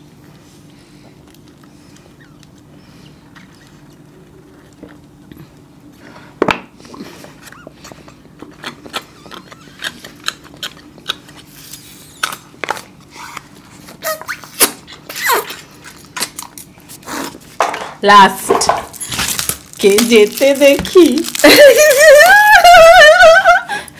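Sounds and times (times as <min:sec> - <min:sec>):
paper cartons crinkling: 0:18.9 - 0:22.9.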